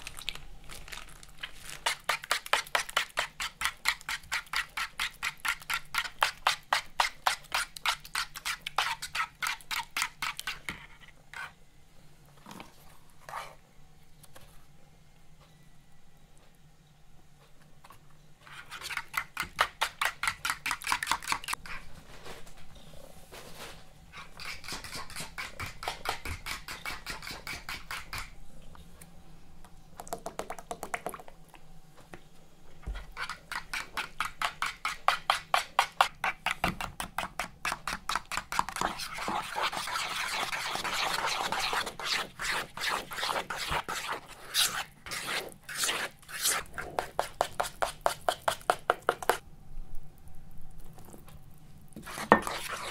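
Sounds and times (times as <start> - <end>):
spoon beating batter in bowl: 1.8 - 11.6, 18.4 - 21.8, 24.2 - 28.4, 32.8 - 49.4, 52.0 - 52.9.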